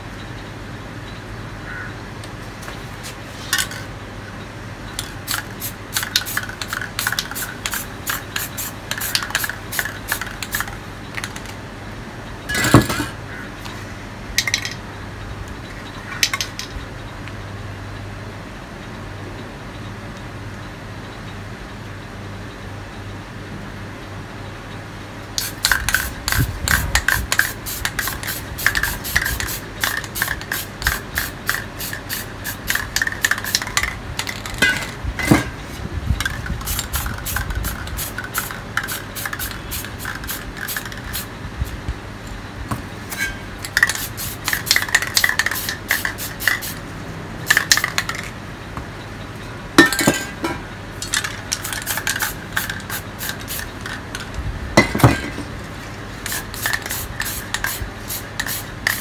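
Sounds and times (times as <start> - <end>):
spray paint can spraying: 5.0 - 11.6, 25.4 - 34.7, 36.2 - 41.8, 43.6 - 48.3, 51.0 - 54.4, 56.2 - 59.0.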